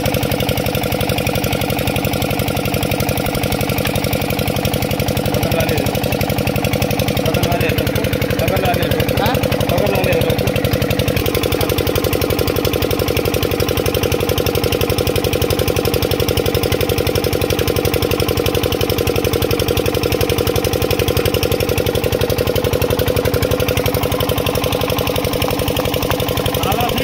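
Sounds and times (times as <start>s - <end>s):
diesel engine chugging: 0.0s - 27.0s.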